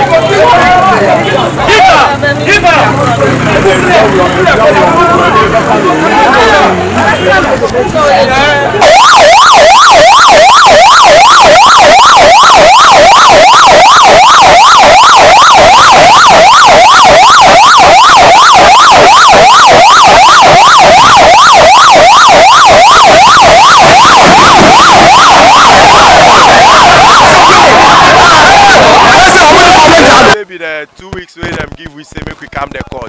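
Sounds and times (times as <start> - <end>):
police siren yelping: 8.1 - 30.4.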